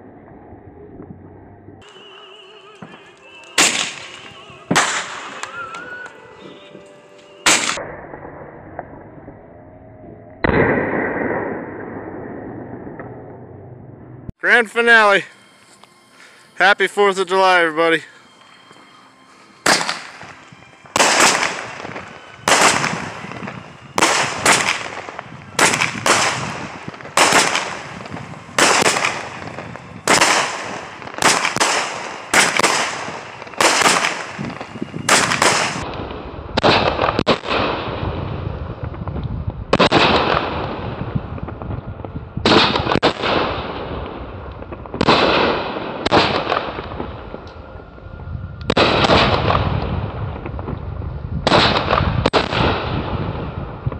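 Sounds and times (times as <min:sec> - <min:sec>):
fireworks bursting with sharp bangs: 0:01.8 - 0:09.0, 0:18.0 - 0:47.5, 0:48.7 - 0:53.9.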